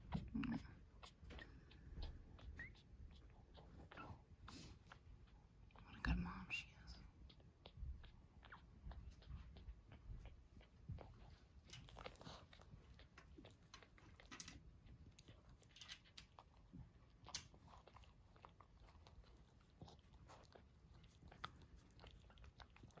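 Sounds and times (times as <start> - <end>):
dog licking wetly: 7.1 - 23.0.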